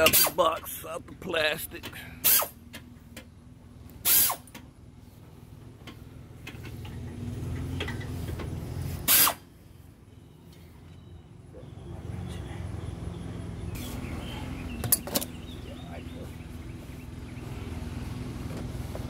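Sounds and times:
power tool bursts: 4.0 - 4.5, 9.0 - 9.4.

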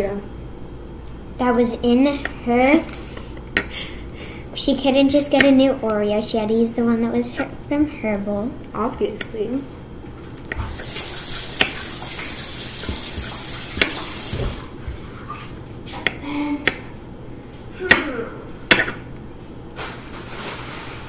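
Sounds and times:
steady hiss: 10.7 - 14.6
knife chopping on wooden board: 12.8 - 14.6.

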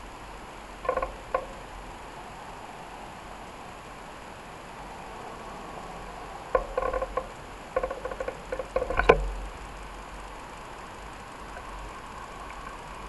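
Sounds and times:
bicycle rattling and squeaking: 0.0 - 1.8, 6.5 - 11.8.

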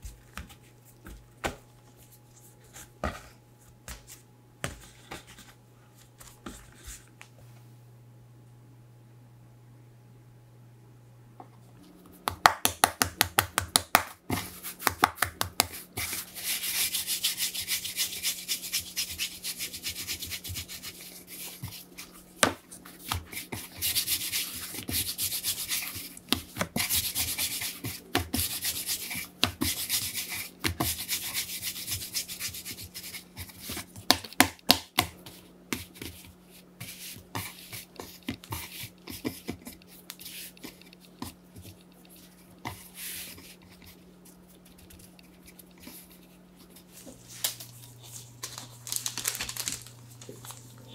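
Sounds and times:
hands rolling dough on board: 11.9 - 47.4.

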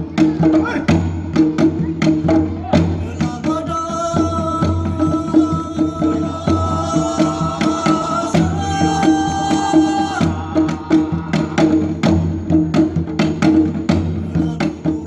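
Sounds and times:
hand drum beats: 0.0 - 15.0
man singing long notes: 3.0 - 12.1, 14.2 - 15.0.

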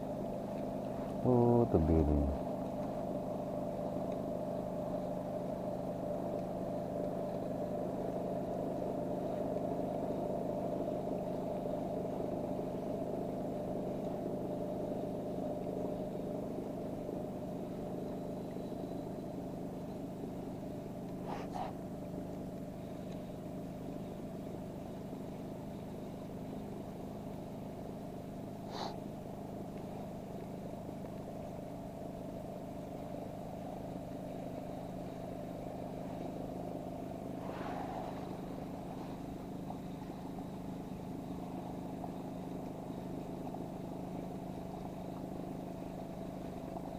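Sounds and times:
outboard engine running: 0.0 - 46.9.

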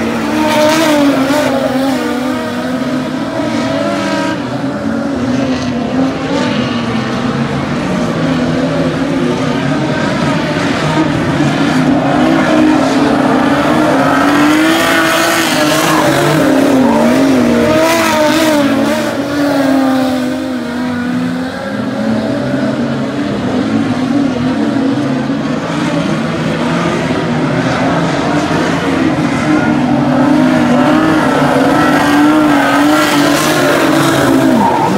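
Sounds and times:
race car engines revving: 0.0 - 34.9.

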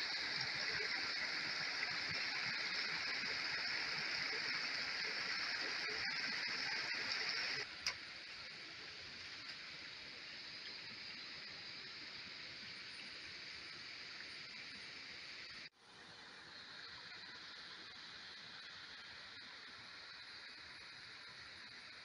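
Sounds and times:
stream flowing over rocks: 0.0 - 15.4.

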